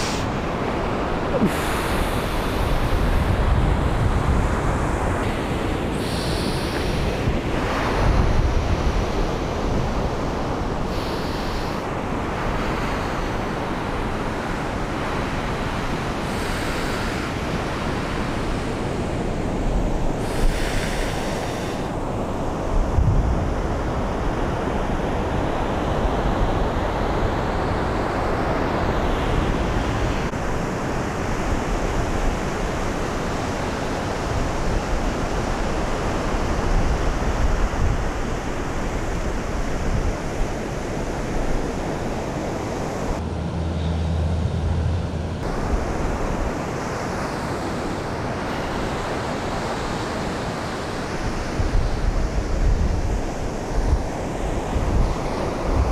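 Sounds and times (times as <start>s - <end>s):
surf washing onto beach: 0.0s - 43.2s
wind gusting over microphone: 0.0s - 55.9s.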